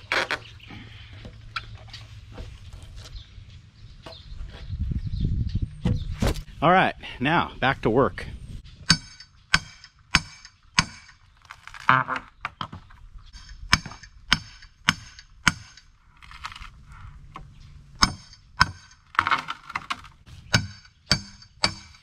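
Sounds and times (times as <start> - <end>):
hammer striking steel pry bar: 8.9 - 11.2, 13.4 - 15.9, 18.0 - 19.0, 20.5 - 22.0.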